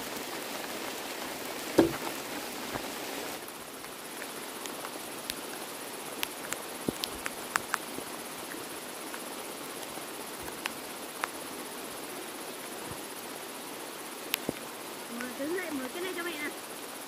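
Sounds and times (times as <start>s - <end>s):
outdoor hiss: 0.0s - 17.0s
bamboo mat clicking: 3.8s - 9.3s.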